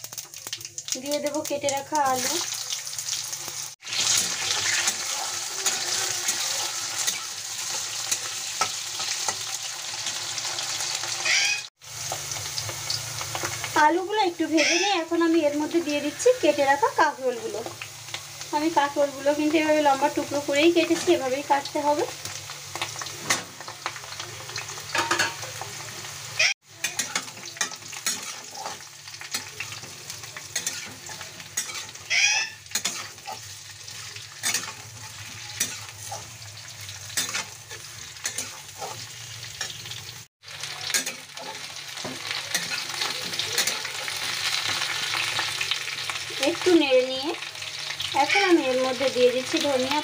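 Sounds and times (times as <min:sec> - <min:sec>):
vegetables sizzling in hot oil: 0:00.0 - 0:50.0
metal spatula scraping pan: 0:26.8 - 0:36.4, 0:37.0 - 0:39.9.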